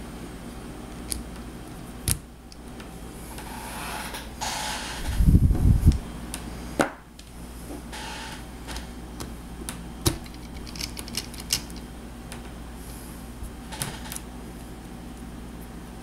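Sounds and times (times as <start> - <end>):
plastic parts clicking and knocking: 10.0 - 11.8.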